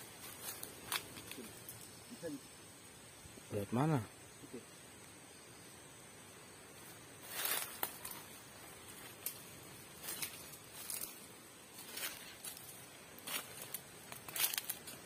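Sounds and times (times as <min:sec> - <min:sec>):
footsteps crunching through dry leaves: 0:00.0 - 0:01.6, 0:07.2 - 0:15.0.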